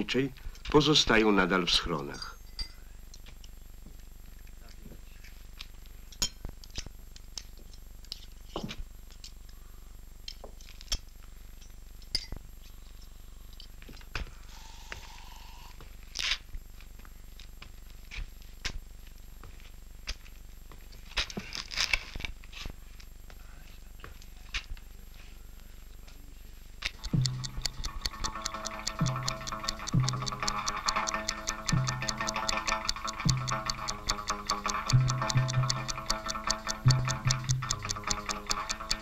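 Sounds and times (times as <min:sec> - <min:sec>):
film soundtrack hum and hiss: 0:00.0 - 0:39.0
objects clicking on a table: 0:26.8 - 0:39.0.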